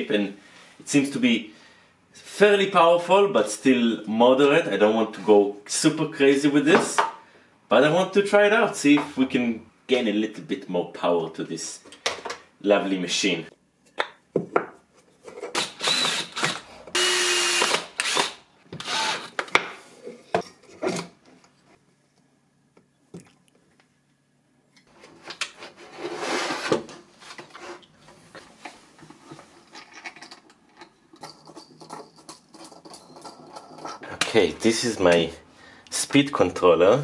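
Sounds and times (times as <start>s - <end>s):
cordless drill running: 15.6s - 19.4s.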